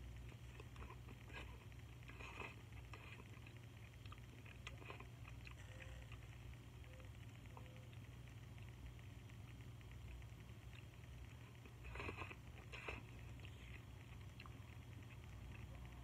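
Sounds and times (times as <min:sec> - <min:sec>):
chewing with wet clicks: 0:00.2 - 0:08.8, 0:10.2 - 0:16.0.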